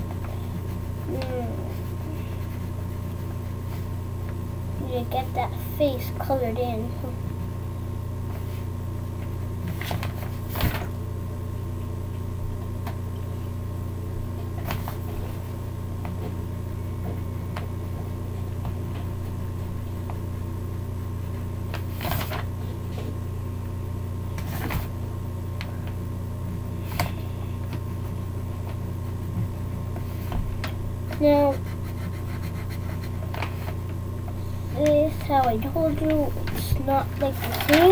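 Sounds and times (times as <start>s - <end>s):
low hum: 0.0s - 37.8s
pencil scratching on paper: 0.4s - 4.0s, 31.5s - 33.3s.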